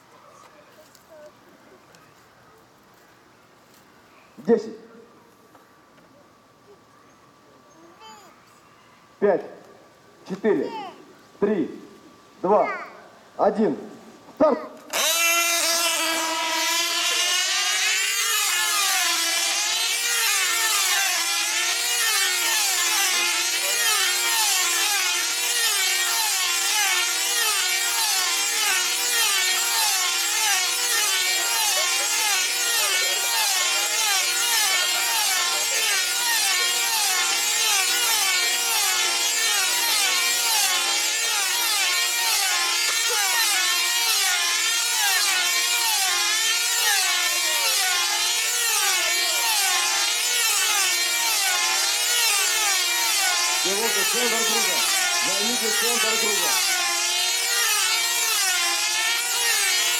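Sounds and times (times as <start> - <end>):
model aircraft engines whining: 14.9 - 59.9.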